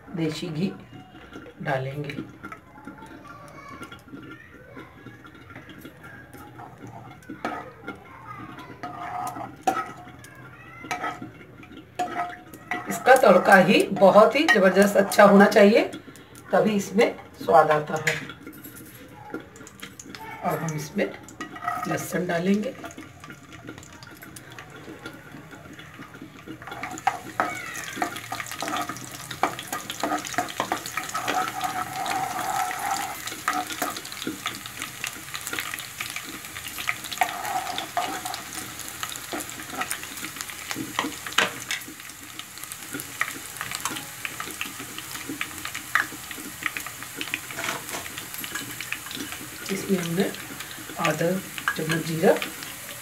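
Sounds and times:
garlic sizzling in ghee: 0:00.0 - 0:53.0
ladle scraping a pan: 0:05.0 - 0:15.4, 0:21.3 - 0:44.0, 0:44.6 - 0:51.0.

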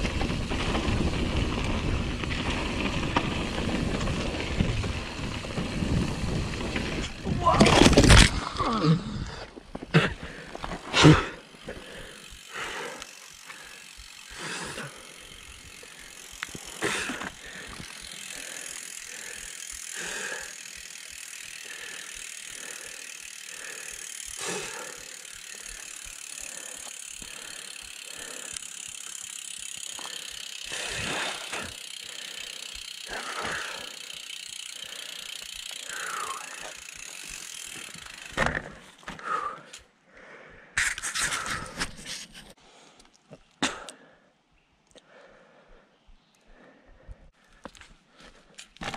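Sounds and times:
rustling on dirt: 0:00.0 - 0:08.7, 0:09.5 - 0:23.0
bike freehub ratchet ticking: 0:11.2 - 0:39.8.

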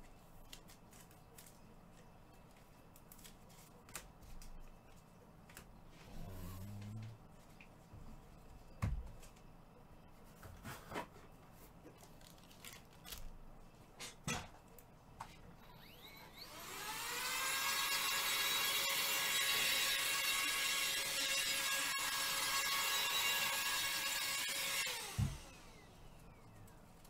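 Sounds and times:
small electric motor whirring: 0:15.6 - 0:26.5.

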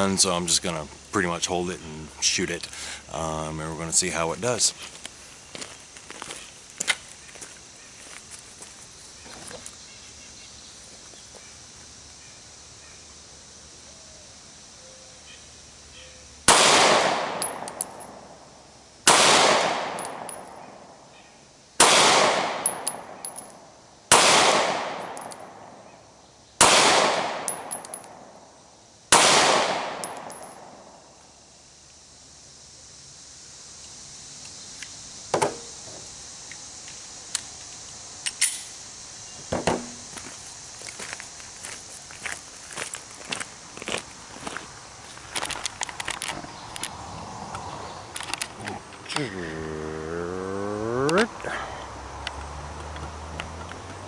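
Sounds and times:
pistol shots with echo: 0:16.5 - 0:18.1, 0:19.1 - 0:20.5, 0:21.8 - 0:23.2, 0:24.1 - 0:25.2, 0:26.6 - 0:28.2, 0:29.1 - 0:30.8.

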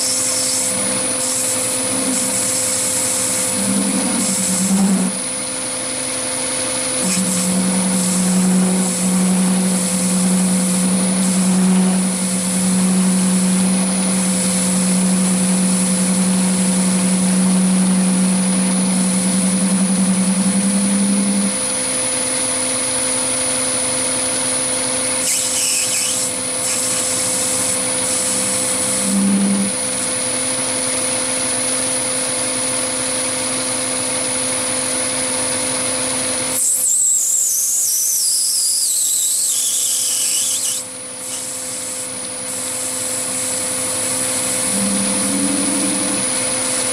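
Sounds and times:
lathe humming and whining: 0:00.0 - 0:46.9
deeper low hum: 0:07.0 - 0:21.7, 0:44.3 - 0:46.7.

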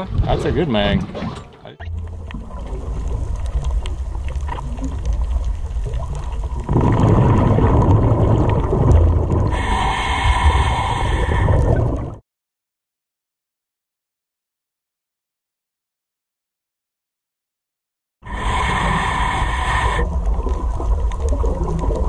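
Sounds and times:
underwater water wash: 0:00.0 - 0:12.2, 0:18.3 - 0:22.0.

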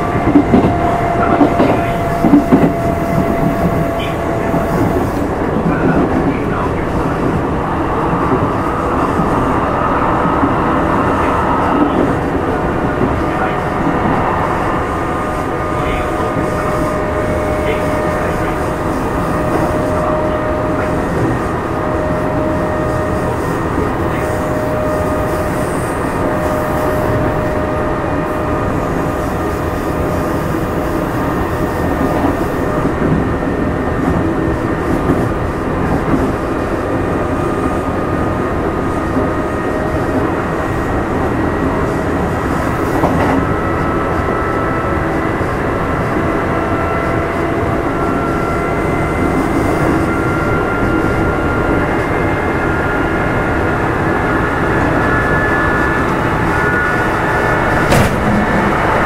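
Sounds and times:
rumble of wheels on rails: 0:00.0 - 0:59.0.

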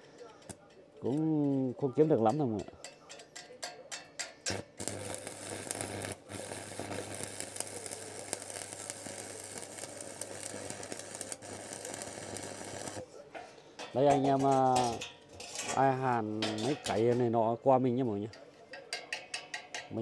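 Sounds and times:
welding arc crackling and hissing: 0:04.4 - 0:13.1.

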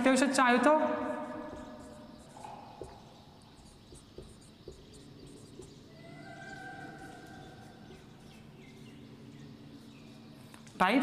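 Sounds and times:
marker writing on whiteboard: 0:01.1 - 0:09.0.

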